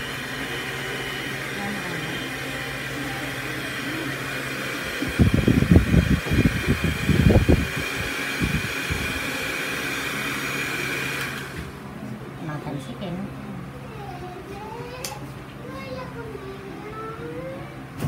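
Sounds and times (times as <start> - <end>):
electric hand mixer whining: 0.0 - 11.8.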